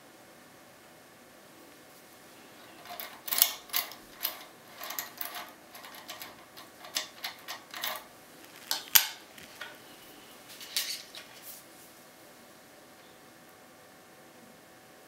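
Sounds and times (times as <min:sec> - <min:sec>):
key clicking in lock cylinder: 0:02.7 - 0:09.8.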